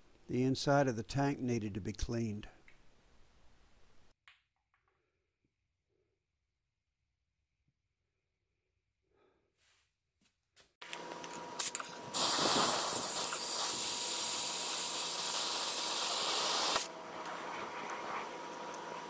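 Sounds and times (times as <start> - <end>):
hose nozzle spraying water: 11.6 - 16.9.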